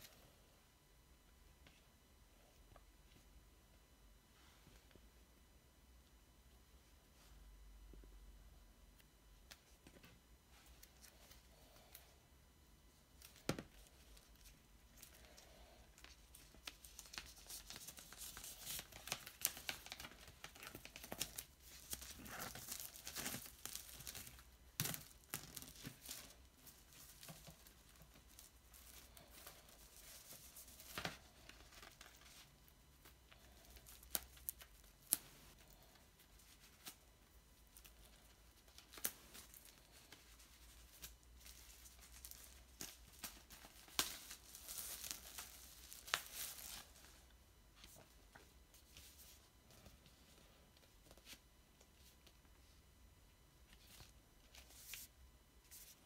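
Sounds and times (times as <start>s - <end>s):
plastic wrap tearing and crinkling: 16.3s - 32.5s, 37.7s - 47.2s.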